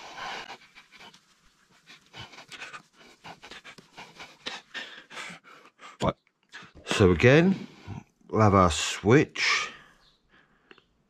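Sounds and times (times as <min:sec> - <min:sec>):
cloth rubbing on whiteboard: 0:00.0 - 0:04.4.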